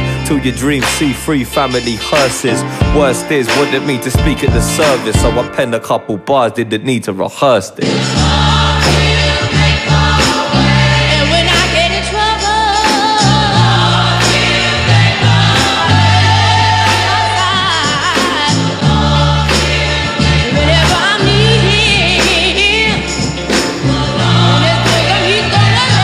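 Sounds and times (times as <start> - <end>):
person singing: 0.0 - 26.0
steady beat with deep bass: 0.2 - 5.5.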